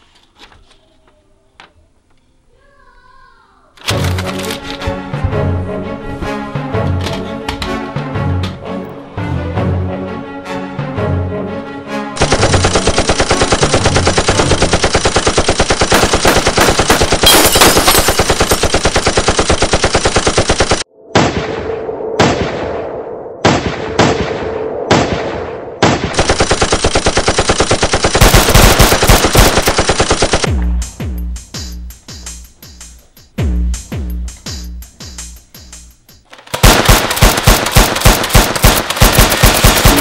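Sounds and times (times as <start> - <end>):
machine-gun bursts: 12.2 - 20.8, 26.2 - 30.5, 36.3 - 40.0
music with a beat: 30.5 - 36.3.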